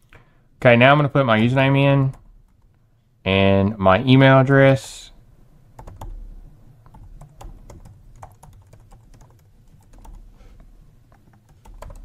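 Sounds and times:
keyboard typing clicks: 11.1 - 12.0.

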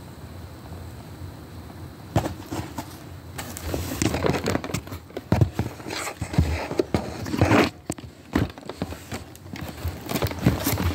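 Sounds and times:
objects tapping and knocking: 2.2 - 10.9
scratchy rustle: 2.2 - 10.9.

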